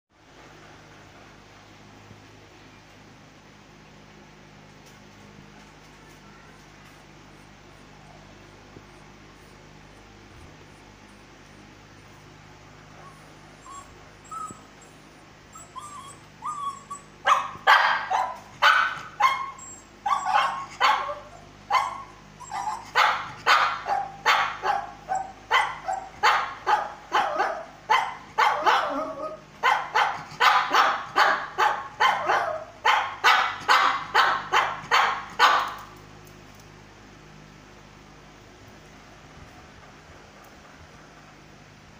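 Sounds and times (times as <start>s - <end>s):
dog whining: 12.9s - 32.7s
dog barking: 17.2s - 35.8s.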